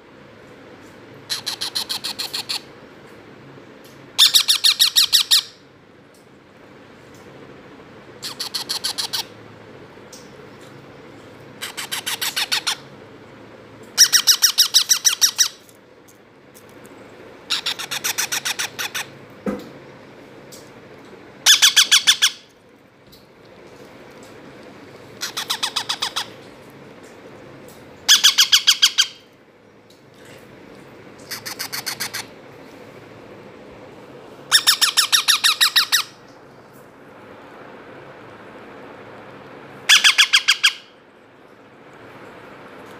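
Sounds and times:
parakeet chicks squawking: 0:01.3 - 0:02.7, 0:04.2 - 0:05.6, 0:08.2 - 0:09.3, 0:11.6 - 0:12.9, 0:14.0 - 0:15.6, 0:17.5 - 0:19.2, 0:21.4 - 0:22.4, 0:25.2 - 0:26.4, 0:28.1 - 0:29.2, 0:31.3 - 0:32.3, 0:34.5 - 0:36.2, 0:39.9 - 0:40.9.

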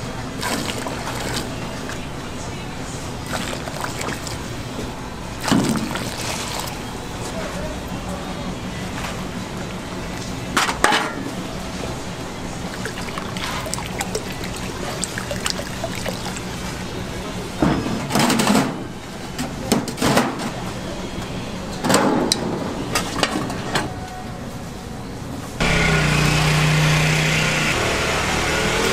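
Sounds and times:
broth splashing in a metal tray: 0:00.4 - 0:02.0, 0:03.2 - 0:04.7, 0:05.3 - 0:06.9, 0:12.6 - 0:17.1.

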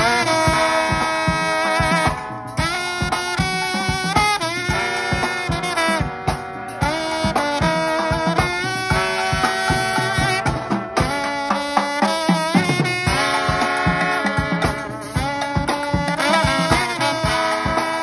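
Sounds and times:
brass band playing upbeat tune: 0:00.0 - 0:18.0
drum kit beat: 0:00.0 - 0:18.0.

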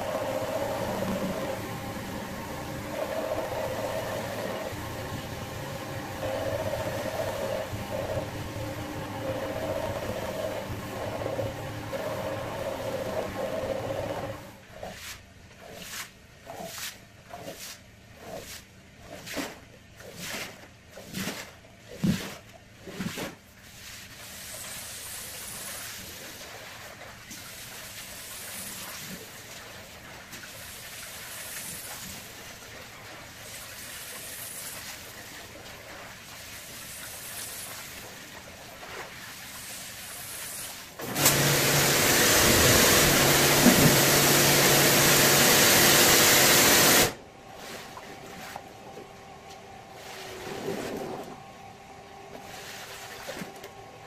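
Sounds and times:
machine with low motor hum: 0:00.0 - 0:14.7, 0:41.0 - 0:54.0
rhythmic rug cleaning strokes: 0:00.0 - 0:51.4, 0:52.1 - 0:54.0.

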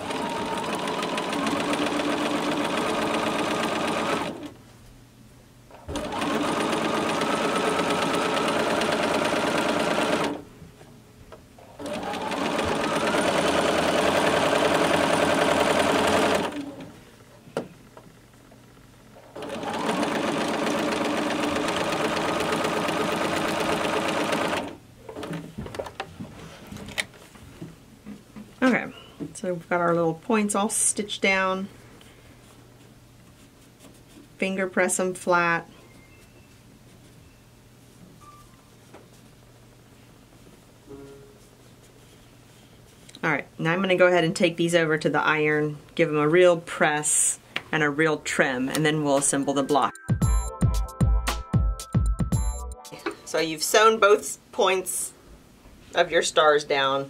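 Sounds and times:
electric sewing machine stitching: 0:00.0 - 0:04.5, 0:05.8 - 0:10.4, 0:11.6 - 0:16.9, 0:19.2 - 0:25.3.

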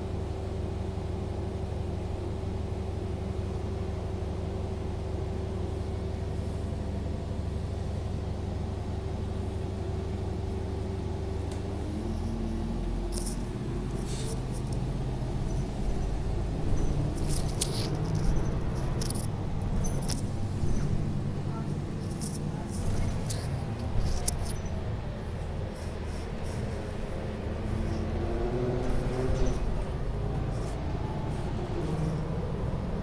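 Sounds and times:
transit vehicle running drone: 0:00.0 - 0:33.0
high squeaks and clicks: 0:15.4 - 0:21.0, 0:21.6 - 0:24.8.

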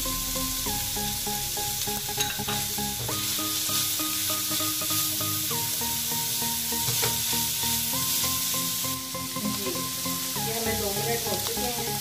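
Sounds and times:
food sizzling in a wok: 0:00.0 - 0:12.0
soft background music: 0:00.0 - 0:12.0
spatula scraping a pan: 0:02.2 - 0:09.8.

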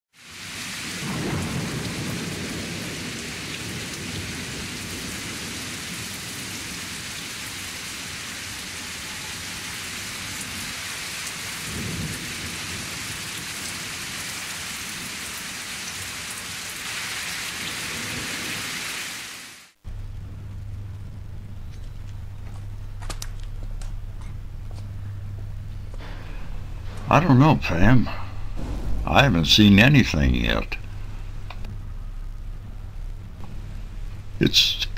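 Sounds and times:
heavy rain: 0:00.1 - 0:34.9
thunder rolling: 0:00.8 - 0:06.8, 0:11.6 - 0:15.2, 0:19.8 - 0:34.9.

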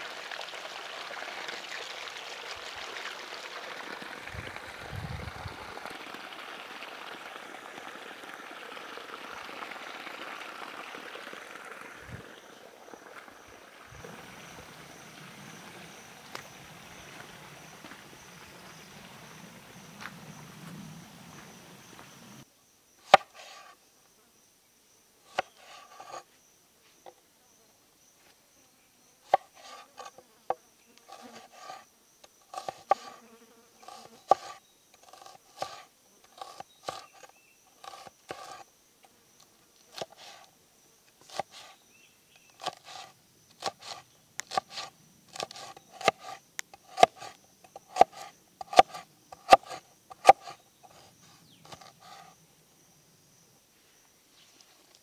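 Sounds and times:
high insect drone: 0:02.6 - 0:55.0
cleaver chopping on wooden board: 0:32.5 - 0:33.2, 0:43.6 - 0:50.6.

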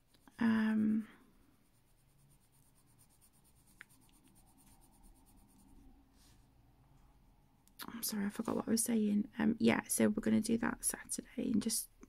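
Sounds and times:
pencil scratching on paper: 0:01.4 - 0:05.9.

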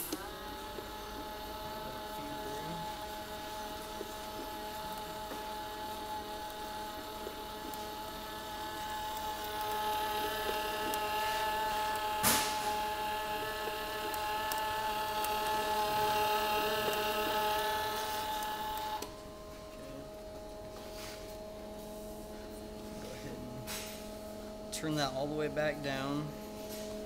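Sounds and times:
welder machine hum: 0:00.0 - 0:27.0
wire-feed motor whine: 0:00.0 - 0:27.0.

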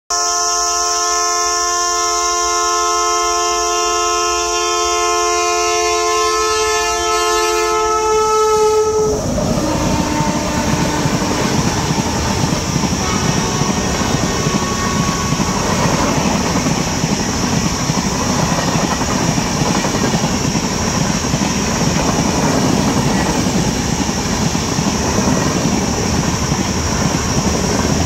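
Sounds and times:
train horn blast: 0:00.1 - 0:17.6
train coaches rushing past: 0:01.5 - 0:28.0.

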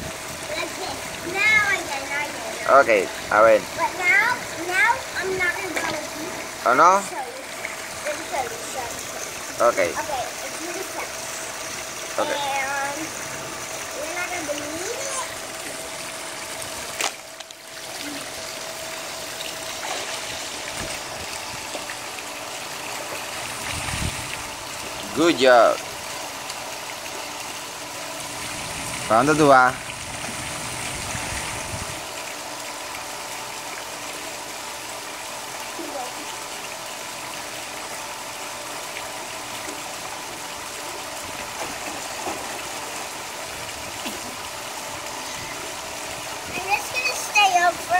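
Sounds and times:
water falling into a pool: 0:00.0 - 0:47.9
faint splashes: 0:00.4 - 0:25.0.

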